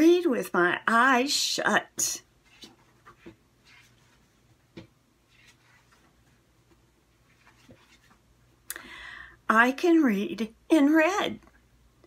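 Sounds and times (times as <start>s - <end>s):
book pages turning: 2.4s - 8.2s
paper rustles: 2.4s - 8.2s.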